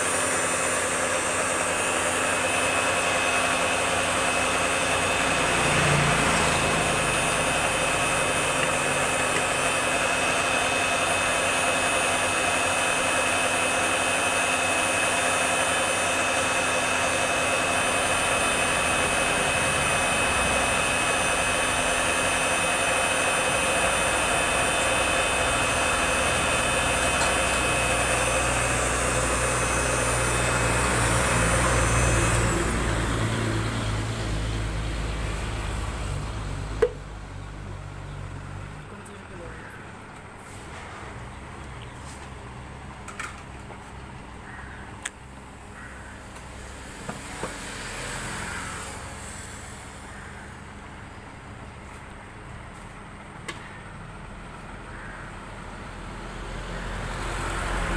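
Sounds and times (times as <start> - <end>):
mixer grinder motor whining: 0.0 - 37.0, 45.8 - 50.8, 55.8 - 57.9.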